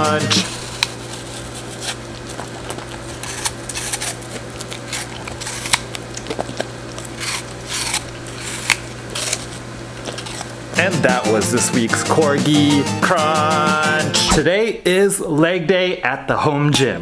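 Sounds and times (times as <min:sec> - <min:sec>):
dog crunching an apple: 0:00.0 - 0:10.6
steady low hum: 0:00.0 - 0:16.4.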